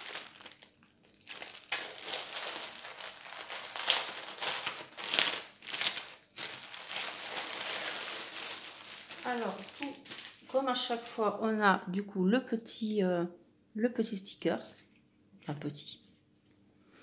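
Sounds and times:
plastic packaging crinkling: 0.0 - 11.2.

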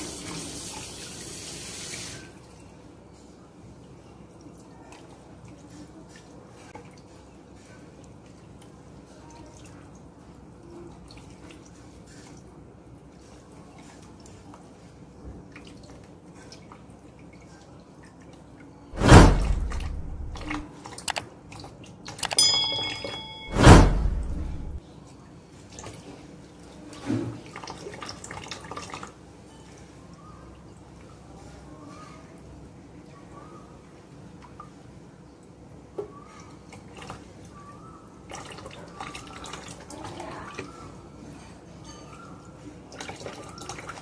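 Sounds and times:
whoosh sound effect: 19.0 - 20.6, 23.3 - 24.8
clicks sound effect: 22.2 - 24.8
short ringing tone: 22.2 - 24.8.

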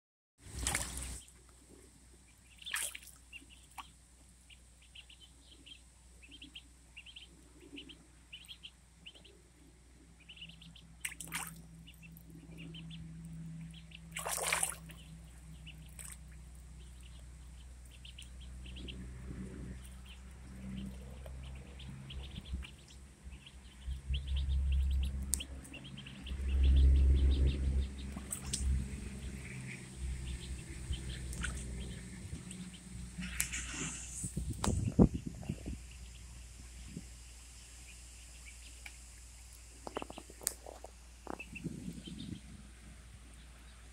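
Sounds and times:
water splashing: 0.4 - 1.3, 2.6 - 3.9, 11.0 - 12.1, 14.1 - 15.1, 27.9 - 34.2
ducklings peeping: 2.2 - 43.9
low rumble: 11.6 - 38.2.

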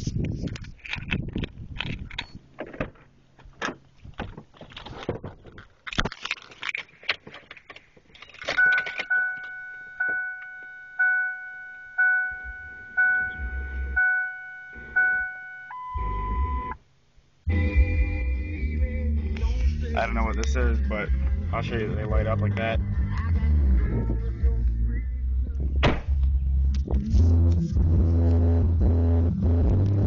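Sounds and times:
car warning chime dinging: 8.6 - 16.8.

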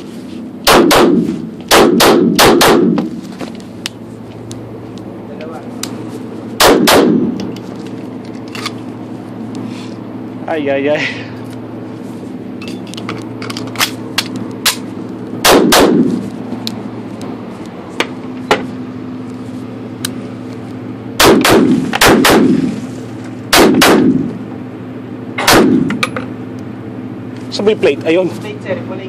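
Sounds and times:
steady background hum: 0.0 - 29.0
pistol shots: 0.6 - 3.1, 6.6 - 7.4, 15.4 - 16.1, 21.2 - 22.7, 23.5 - 24.3, 25.4 - 26.0.

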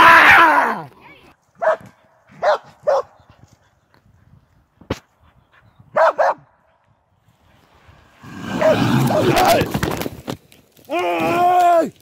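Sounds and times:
dog barking: 1.6 - 3.2, 5.9 - 6.5.

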